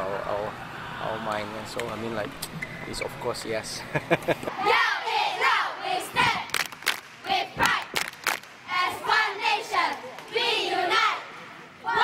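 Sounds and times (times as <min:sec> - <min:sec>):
crowd chanting and shouting: 0:04.5 - 0:12.0.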